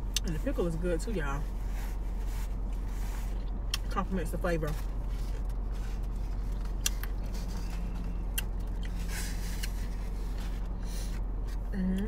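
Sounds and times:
car cabin hum: 0.0s - 12.0s.

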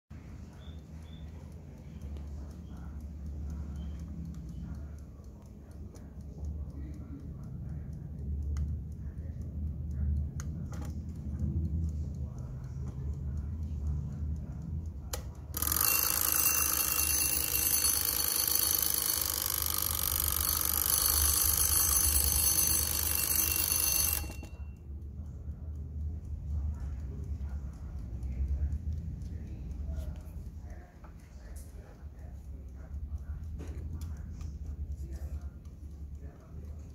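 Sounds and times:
alarm clock bell ringing: 15.6s - 24.8s.

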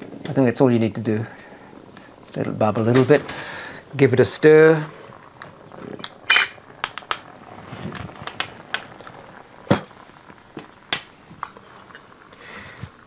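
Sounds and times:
metal spoon clinking on glass: 6.3s - 6.7s.

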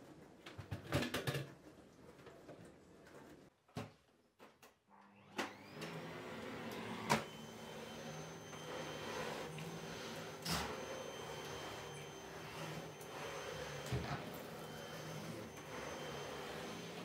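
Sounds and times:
vacuum cleaner motor whine: 5.1s - 17.0s.

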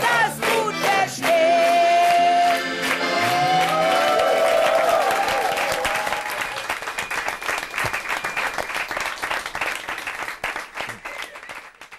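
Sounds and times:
person singing: 0.0s - 3.9s
crowd applauding: 0.0s - 11.9s.

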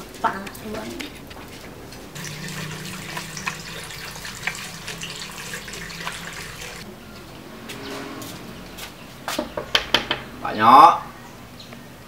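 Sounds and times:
hands scrubbing soap lather: 2.2s - 6.8s
water running and splashing: 2.2s - 6.8s.

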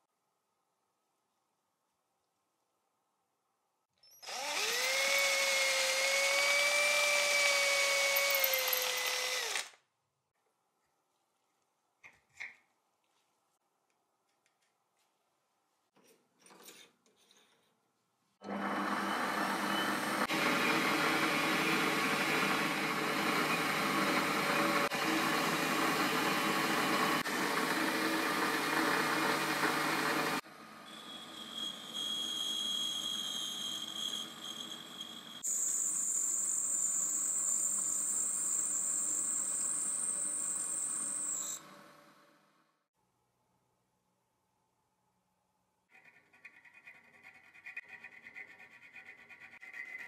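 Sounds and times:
rotary tool cut-off wheel whining: 4.0s - 9.8s, 18.4s - 41.8s
belt sander grinding steel: 18.5s - 41.6s.

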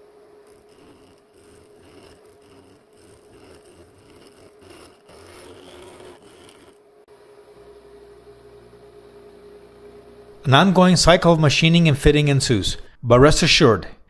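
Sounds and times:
metal cutting scraping noise: 0.0s - 6.9s
milling machine hum: 0.0s - 10.5s.

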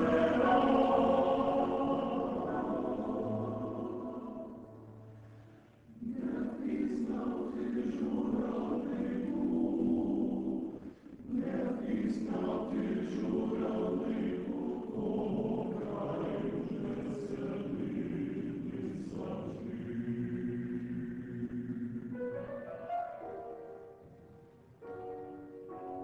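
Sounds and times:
male choir singing: 0.0s - 4.8s, 6.0s - 22.2s.

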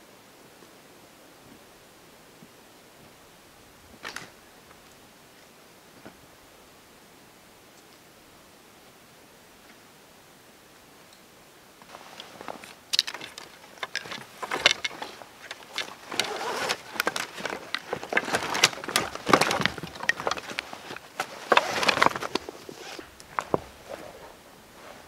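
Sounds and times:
strap rustling: 11.9s - 25.0s
sticks knocking together: 12.2s - 23.6s.

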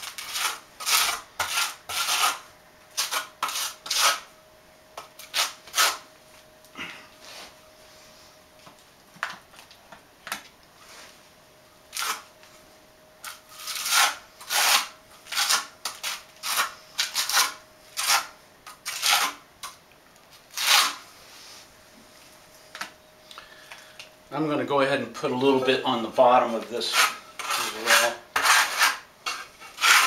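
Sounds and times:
trowel scraping mastic on floor: 0.0s - 4.3s, 5.0s - 6.1s, 11.9s - 12.3s, 13.2s - 19.8s, 20.5s - 21.7s, 26.6s - 30.0s.

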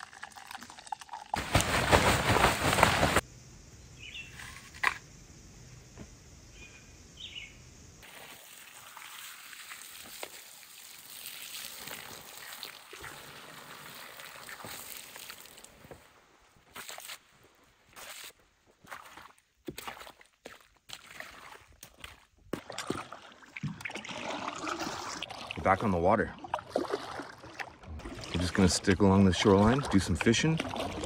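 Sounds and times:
bird chirps: 3.8s - 4.4s, 6.5s - 7.6s
water hissing on hot coals: 8.0s - 16.8s.

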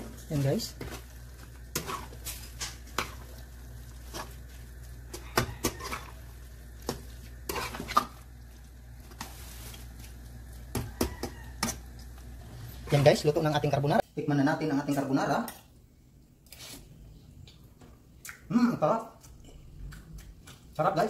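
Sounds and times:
spatula scraping and knocking pan: 0.7s - 3.3s, 5.1s - 8.2s.

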